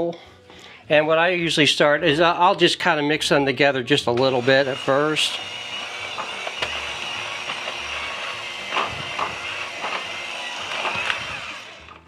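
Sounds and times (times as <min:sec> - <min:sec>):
electric mixer whining: 0:04.1 - 0:12.0.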